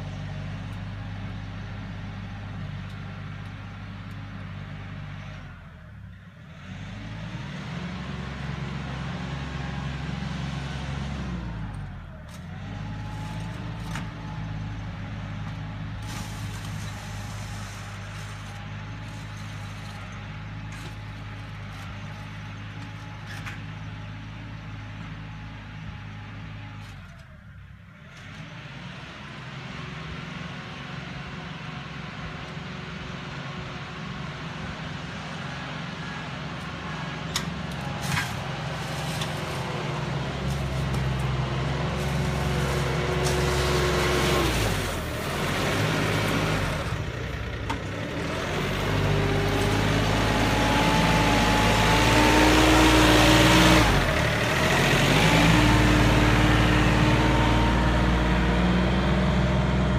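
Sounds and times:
tractor diesel engine under load: 0:00.0 - 0:59.9
scraper through gravel: 0:16.0 - 0:22.4, 0:37.8 - 0:46.8.

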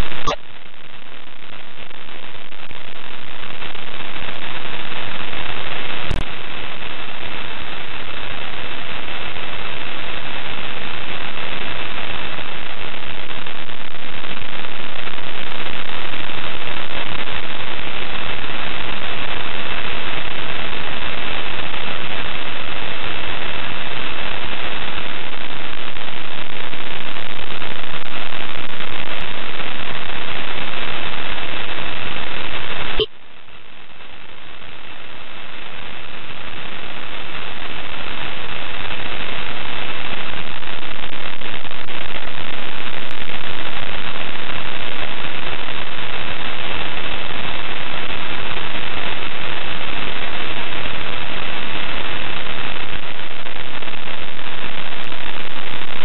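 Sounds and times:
radio static hiss: 0:00.0 - 0:56.0
click: 0:06.1 - 0:06.3.

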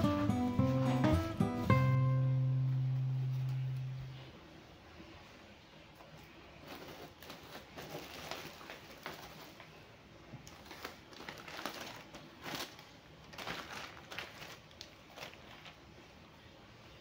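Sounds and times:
plastic bags crinkling: 0:06.6 - 0:09.8, 0:10.4 - 0:16.0.

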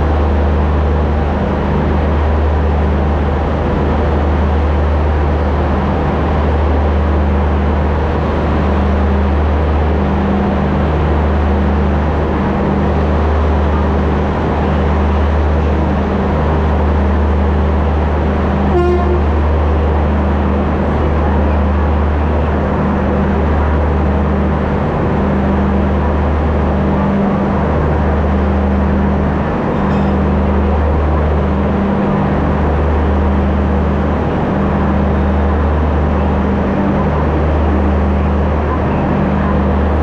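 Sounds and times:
diesel locomotive engine idling: 0:00.0 - 0:40.0
locomotive horn toot: 0:18.7 - 0:19.9.

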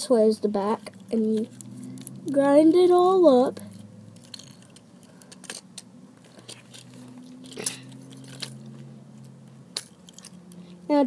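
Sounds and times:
tin foil crunching in plastic gears: 0:07.4 - 0:08.6.

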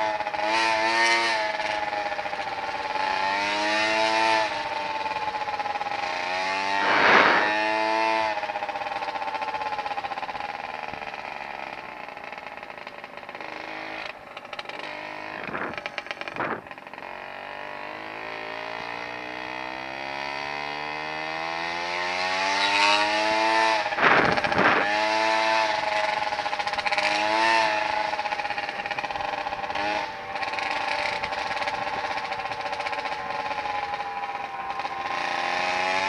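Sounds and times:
scooter wheels humming on pavement: 0:00.0 - 0:36.0
scooter jolting over bumps: 0:12.3 - 0:17.0, 0:22.6 - 0:36.0.

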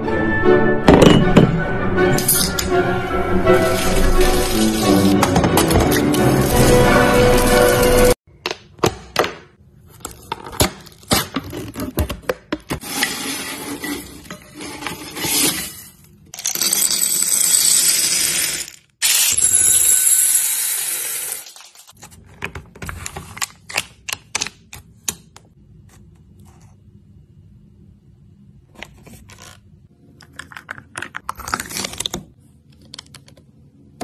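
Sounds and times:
candies poured into glass bowl: 0:03.6 - 0:05.0.

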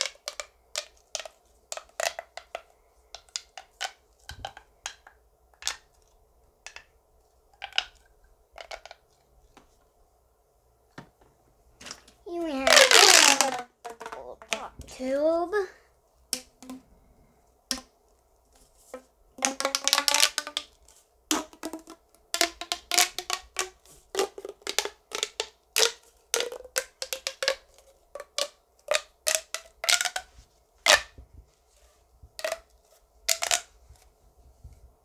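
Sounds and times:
plastic pop tube clicking: 0:00.0 - 0:06.9, 0:07.6 - 0:09.0, 0:12.6 - 0:14.9, 0:16.3 - 0:16.8, 0:17.7 - 0:17.9, 0:18.9 - 0:31.2, 0:32.4 - 0:32.7, 0:33.3 - 0:33.7
pop tube buzzy stretch: 0:12.5 - 0:15.0, 0:18.8 - 0:31.2, 0:32.4 - 0:33.7.

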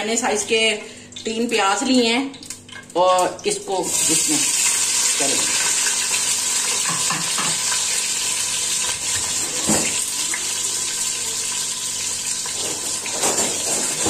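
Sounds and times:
onions sizzling in hot oil: 0:03.7 - 0:14.0.

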